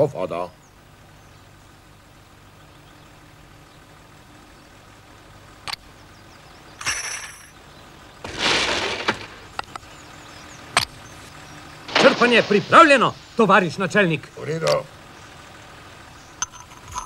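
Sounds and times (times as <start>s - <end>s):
ringing metallic clink: 6.8s - 7.6s
short rushing noise: 8.3s - 9.6s, 11.9s - 13.4s.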